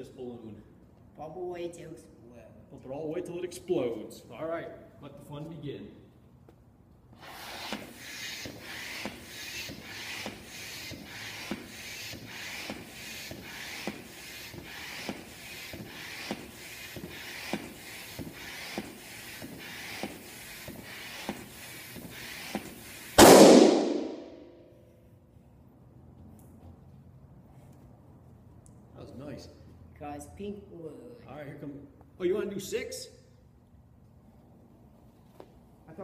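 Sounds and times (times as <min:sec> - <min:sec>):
hand air pump hissing: 0:07.1 - 0:23.2
balloon bursting bang: 0:23.2 - 0:24.4.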